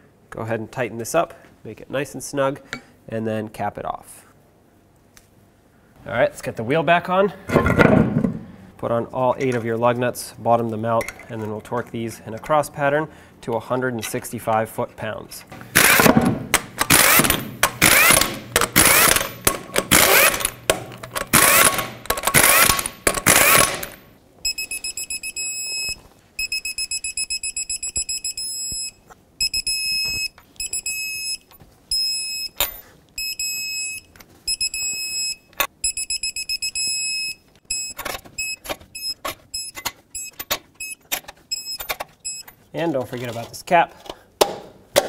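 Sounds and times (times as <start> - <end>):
impact gun bursts: 15.7 - 24.0
torque wrench beeping: 16.8 - 20.7, 21.3 - 42.5
torque wrench clicks: 16.8 - 24.0.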